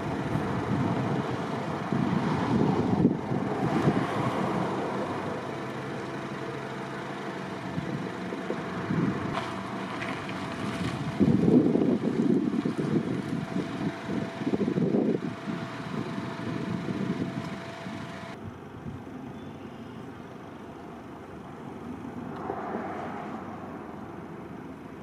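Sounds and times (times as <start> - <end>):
gusty wind on microphone: 0.0 - 5.2, 7.7 - 9.4, 10.0 - 19.0.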